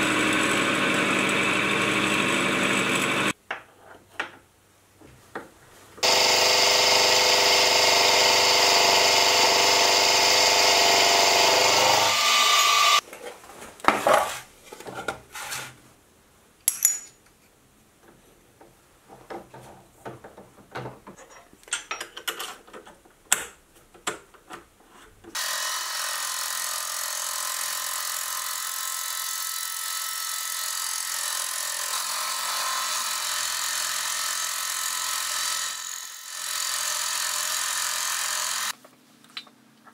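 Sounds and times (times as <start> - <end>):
milling machine cutting steel: 0.0 - 3.3, 6.0 - 13.0
clicks and knocks of handling: 18.0 - 25.4.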